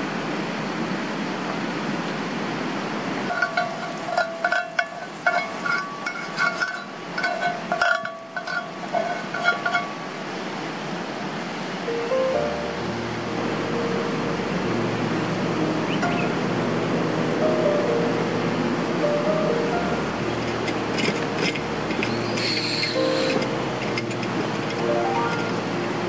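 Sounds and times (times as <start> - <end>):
stream rushing: 0.0 - 26.0
utensils clinking on cookware: 3.3 - 10.2, 20.4 - 25.6.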